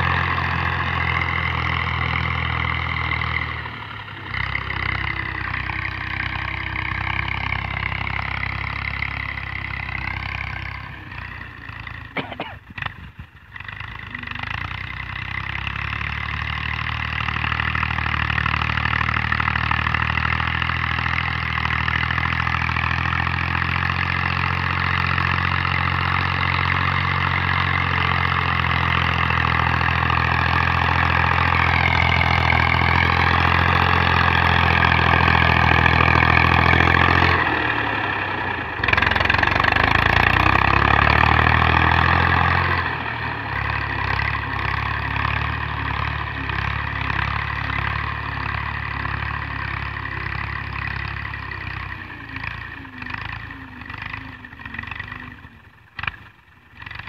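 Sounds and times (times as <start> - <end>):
diesel tractor engine running: 0.0 - 57.0.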